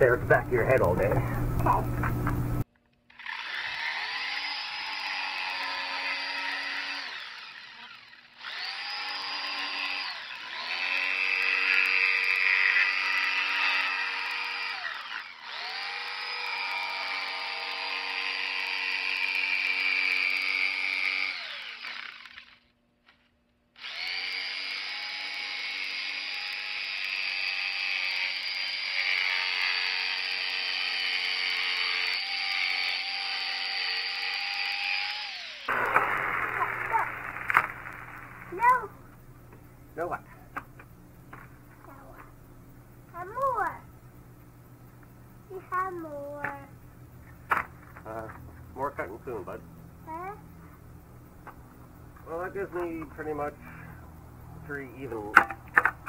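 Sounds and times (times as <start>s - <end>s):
jigsaw cutting plastic pipe: 3.1s - 23.2s, 23.8s - 38.8s.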